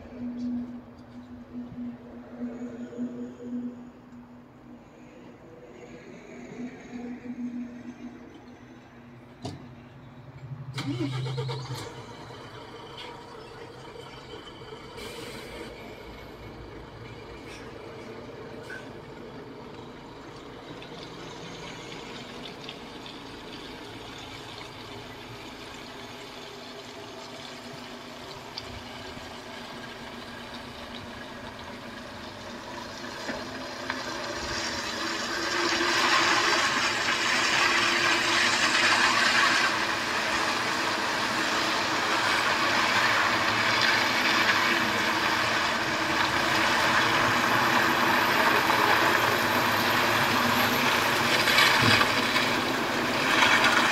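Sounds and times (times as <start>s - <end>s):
truck engine hum: 0.0s - 53.9s.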